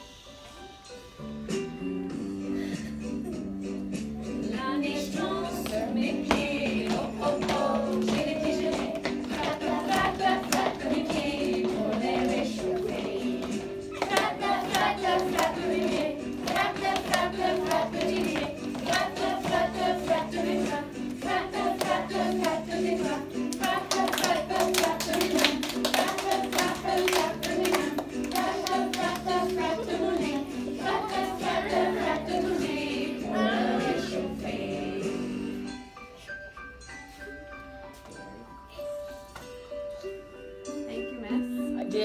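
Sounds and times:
musical accompaniment: 0:00.0 - 0:42.0
children singing in unison: 0:04.9 - 0:35.4.

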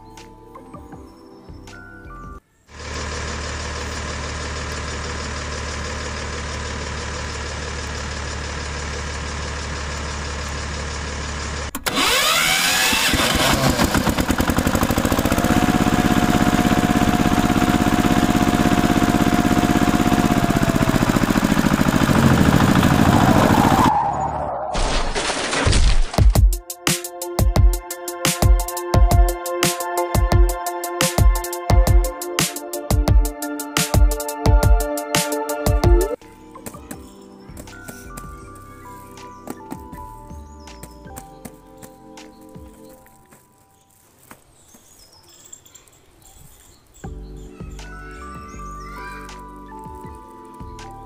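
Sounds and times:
tractor engine idling hum: 0:02.7 - 0:23.9
engine starting with rising whine: 0:02.7 - 0:25.7.

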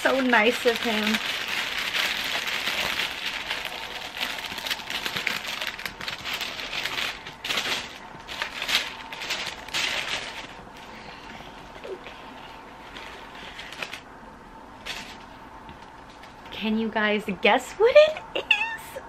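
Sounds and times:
tissue paper rustling: 0:00.0 - 0:14.0, 0:14.8 - 0:15.4.

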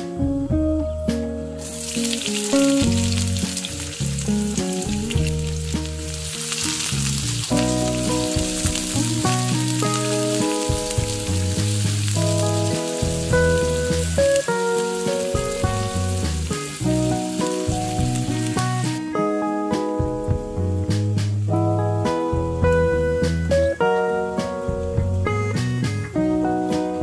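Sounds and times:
background music: 0:00.0 - 0:27.0
onion sizzling in oil: 0:01.6 - 0:19.0.

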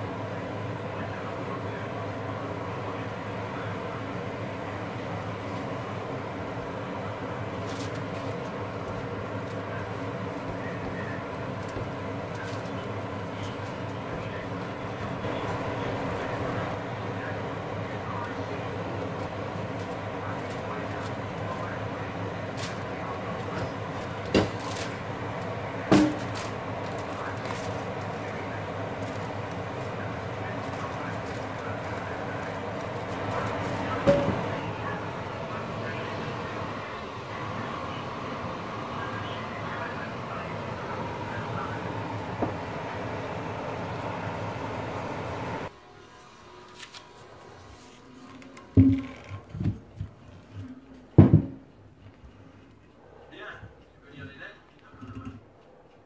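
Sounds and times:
gas burner hissing: 0:00.0 - 0:51.2
mechanical hum: 0:00.0 - 0:56.0
pan knocking: 0:48.7 - 0:49.2.

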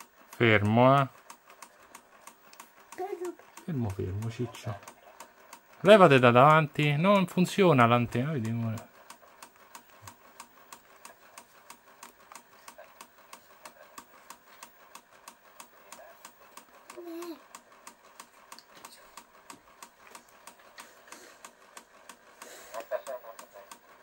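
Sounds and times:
video recorder mechanism ticking: 0:00.0 - 0:24.0.

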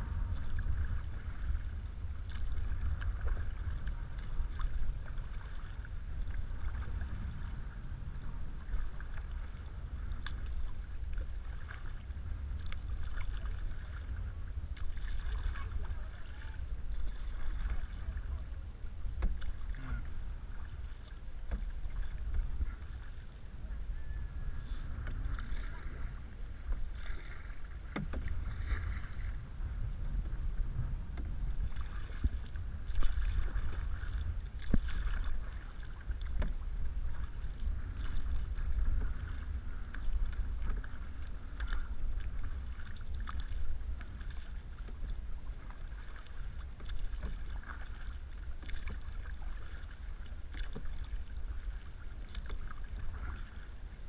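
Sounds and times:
paddles splashing in water: 0:00.0 - 0:54.0
wind rumble on microphone: 0:00.0 - 0:54.0
paddle knocking against canoe: 0:08.6 - 0:23.9, 0:24.7 - 0:53.8.

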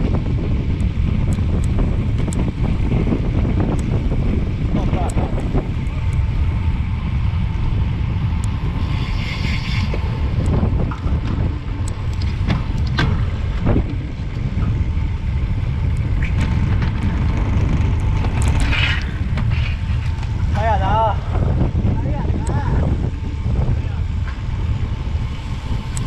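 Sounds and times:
wind buffeting microphone: 0:00.0 - 0:26.0
bike clicks and knocks: 0:08.4 - 0:20.6.

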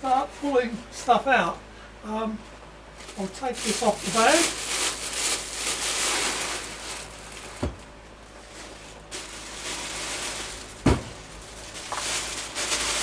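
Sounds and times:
plastic packaging rustling: 0:03.0 - 0:13.0
dull thumps: 0:07.5 - 0:07.9, 0:10.8 - 0:11.3.

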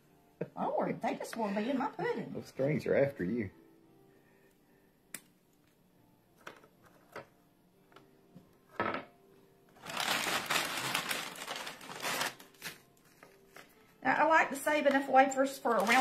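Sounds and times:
plastic bag crinkling: 0:09.8 - 0:13.9, 0:15.6 - 0:16.0.

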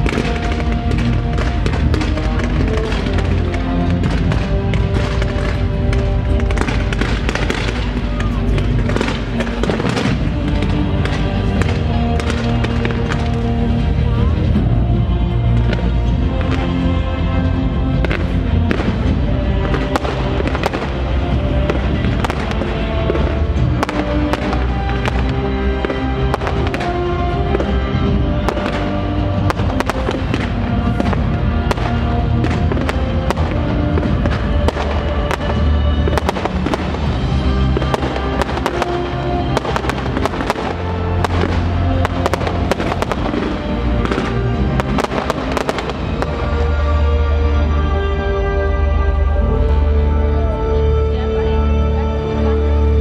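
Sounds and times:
fireworks bangs and crackles: 0:00.0 - 0:51.0
music playing: 0:00.0 - 0:53.0.

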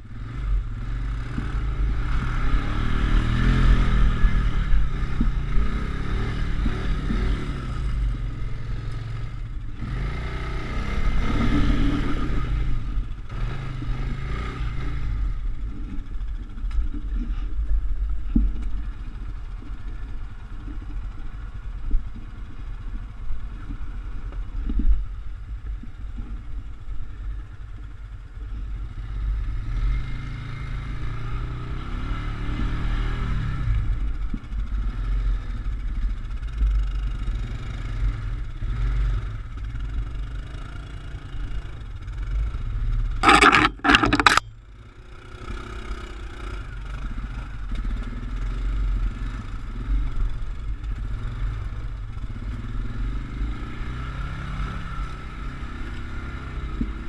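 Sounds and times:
atv engine revving: 0:00.0 - 0:17.4, 0:28.0 - 0:57.0
loud short noise bursts: 0:43.2 - 0:44.4.

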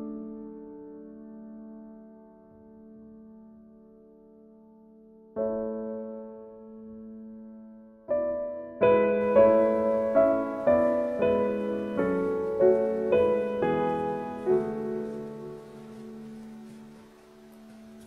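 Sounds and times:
slow piano melody: 0:00.0 - 0:18.0.

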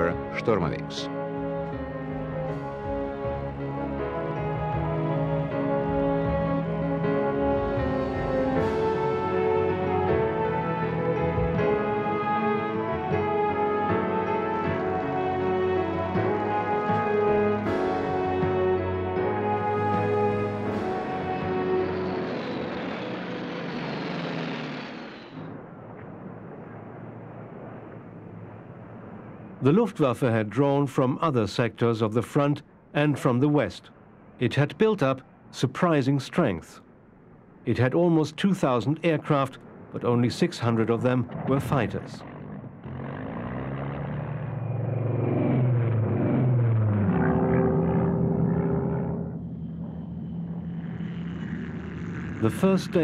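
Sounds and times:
music: 0:00.0 - 0:23.8
aircraft engines droning: 0:00.0 - 0:53.0.

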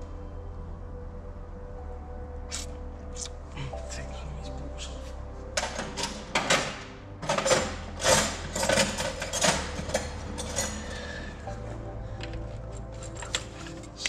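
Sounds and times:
steady low hum: 0:00.0 - 0:14.0
tools and metal parts clinking: 0:05.6 - 0:11.6, 0:12.2 - 0:14.0.

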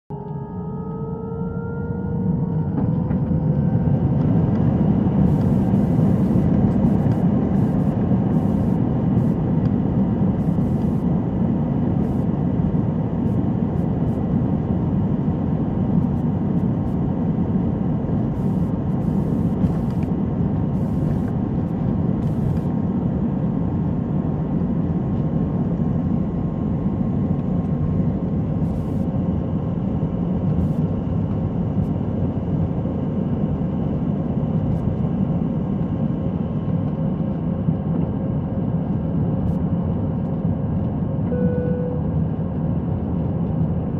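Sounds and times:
engine whining tones: 0:00.1 - 0:22.6
jet engines at takeoff: 0:00.1 - 0:43.9.

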